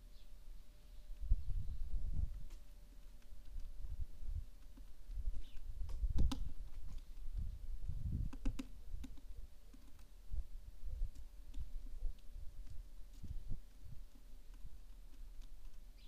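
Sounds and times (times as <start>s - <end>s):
wind buffeting microphone: 1.2s - 2.6s, 3.5s - 9.5s, 10.3s - 14.8s
sharp clicks: 2.4s - 7.3s, 8.2s - 10.1s.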